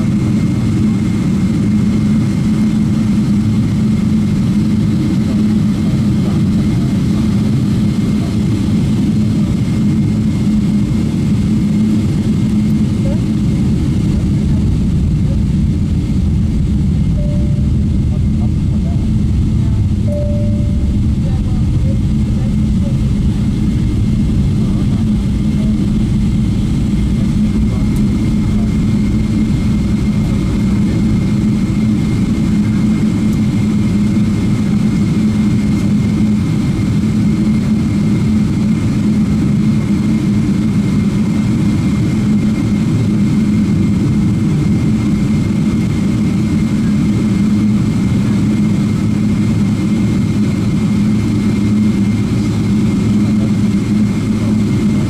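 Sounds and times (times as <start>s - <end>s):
jet engines low rumble: 0.0s - 55.0s
thin high engine tone: 17.1s - 35.7s.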